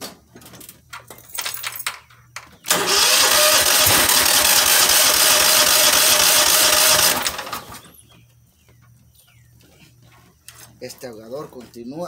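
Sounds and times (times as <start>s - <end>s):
engine cranking without starting: 2.7s - 8.0s.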